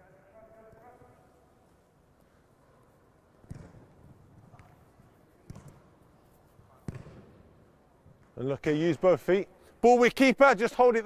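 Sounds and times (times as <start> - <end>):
football kick thuds: 3.4 - 4.8, 5.4 - 5.9, 6.8 - 7.3.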